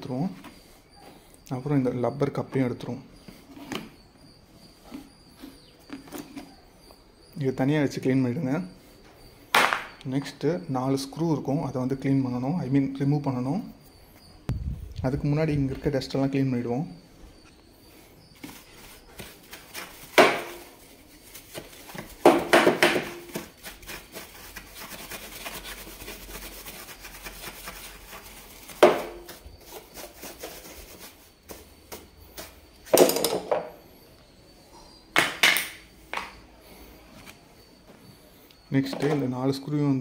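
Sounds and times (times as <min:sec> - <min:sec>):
quick rubbing strokes: 0:23.5 - 0:31.6.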